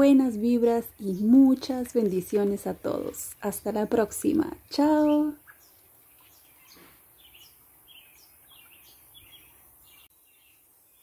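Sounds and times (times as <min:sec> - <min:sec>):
bird chirping: 0:00.1 - 0:11.0.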